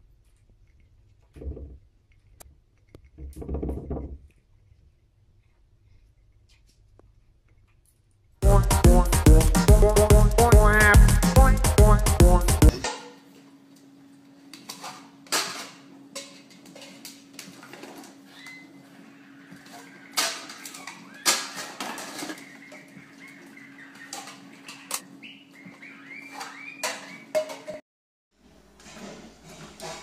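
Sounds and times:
cockatoo squeaks: 18.3 - 27.3
plastic cups clattering on floor: 19.6 - 23.0.

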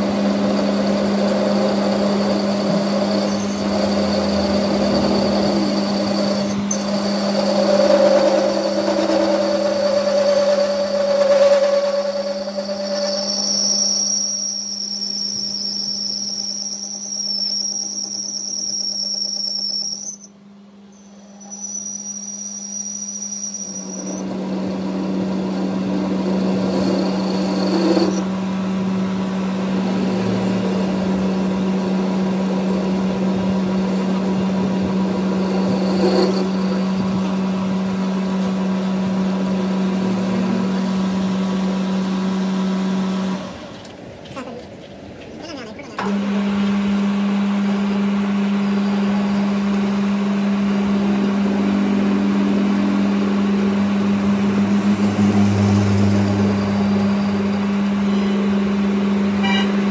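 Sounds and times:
metal lathe cutting steel: 0.0 - 20.4, 21.0 - 43.8, 46.1 - 59.9
high steady whine: 0.0 - 43.9, 45.9 - 59.9.

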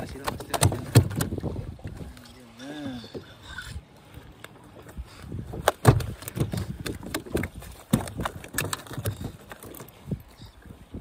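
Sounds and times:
knocks and thumps on boat: 0.0 - 2.0, 5.5 - 10.2.

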